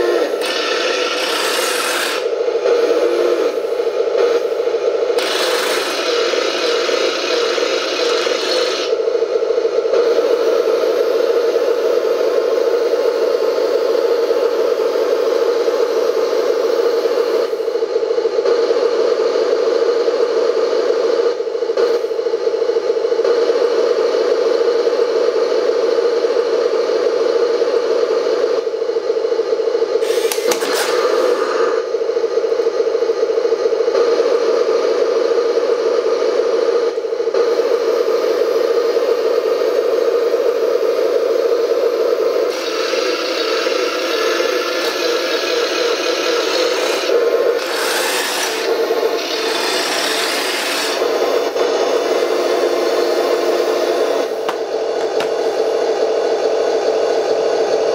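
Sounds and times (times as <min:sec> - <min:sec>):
rough motor and gear noise: 0:00.0 - 0:09.0, 0:30.0 - 0:31.5, 0:42.4 - 0:55.6
model tank droning hum: 0:00.0 - 0:57.9.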